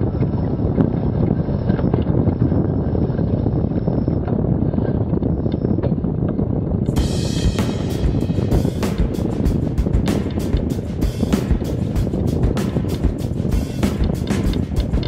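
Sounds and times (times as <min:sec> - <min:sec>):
wind buffeting microphone: 0:00.0 - 0:15.0
bright sound with sharp strokes: 0:06.9 - 0:15.0.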